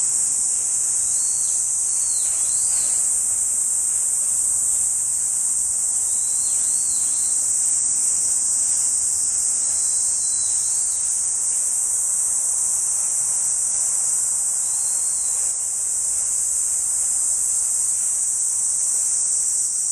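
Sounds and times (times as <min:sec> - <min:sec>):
insects shrilling: 0:00.0 - 0:04.9, 0:09.1 - 0:11.2.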